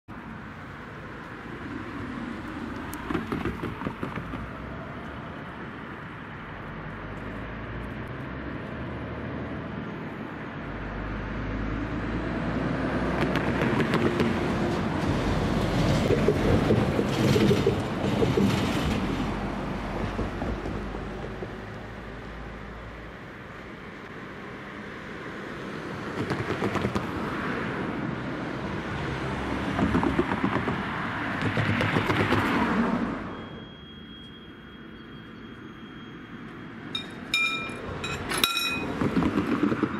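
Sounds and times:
approaching vehicle rumble: 0.1 - 27.3
wheels knocking on rails: 3.0 - 4.6, 13.1 - 19.3, 20.0 - 21.8, 29.7 - 32.5, 36.9 - 39.9.

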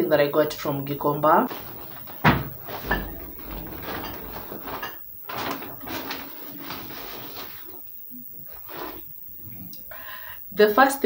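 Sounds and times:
plastic bag rustling: 0.5 - 7.8.

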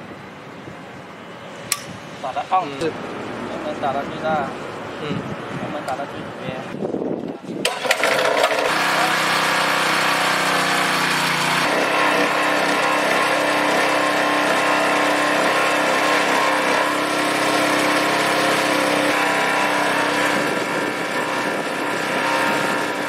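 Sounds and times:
small gasoline engine running: 7.6 - 23.0.

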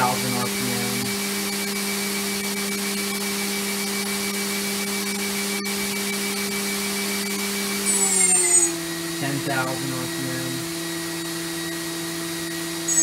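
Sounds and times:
machine spindle spinning: 10.6 - 13.0.

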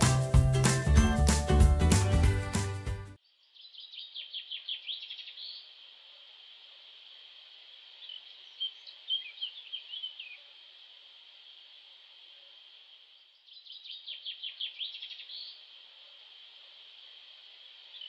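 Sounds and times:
bird chirping: 3.2 - 5.7, 8.0 - 10.4, 13.3 - 15.6.

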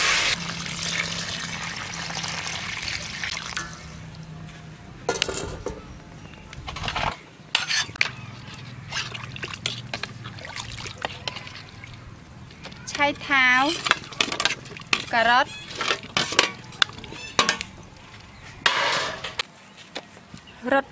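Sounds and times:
water pouring into pot: 0.0 - 4.0.

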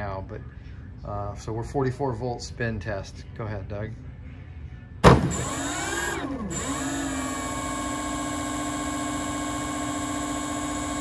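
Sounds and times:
electric motor whine: 5.3 - 11.0.

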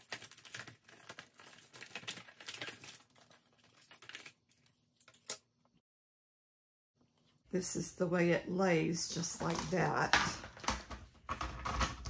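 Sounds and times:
plastic packaging crinkling: 0.0 - 5.4.

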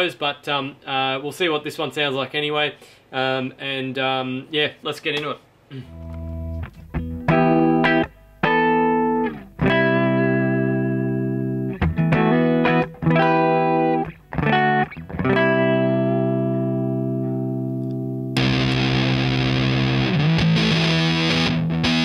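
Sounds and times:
distorted electric guitar: 5.7 - 22.0.

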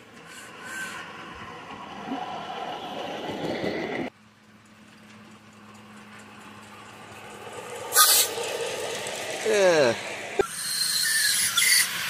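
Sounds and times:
miniature train running past: 0.0 - 12.0
steam locomotive running: 0.0 - 12.0
steady low hum: 4.4 - 10.5.

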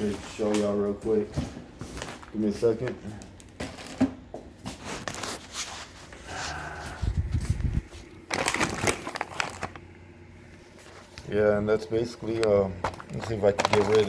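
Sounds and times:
plastic bag crinkling: 3.4 - 4.1, 7.8 - 9.9, 12.8 - 14.0
paper rustling: 4.7 - 6.2, 12.8 - 14.0.

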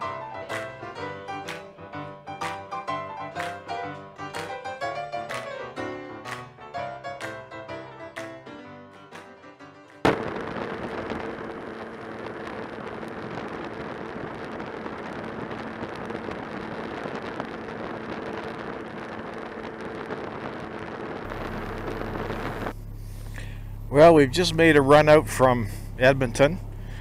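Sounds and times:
motorcycle engine drone: 10.0 - 27.0
wind and road rush: 10.3 - 23.8.

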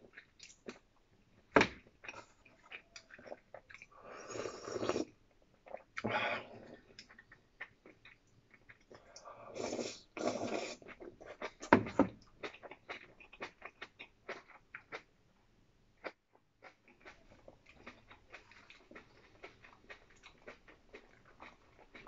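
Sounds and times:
person slurping from bowl: 4.0 - 5.1, 9.4 - 11.0.

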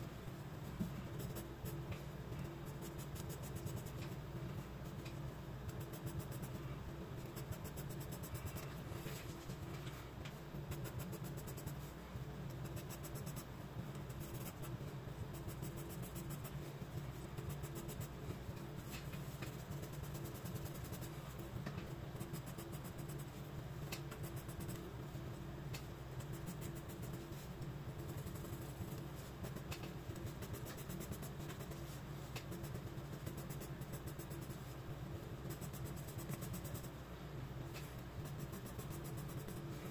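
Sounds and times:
low steady hum: 0.0 - 39.9
pencil scratching on paper: 19.5 - 21.2, 26.2 - 34.7, 38.2 - 39.9.

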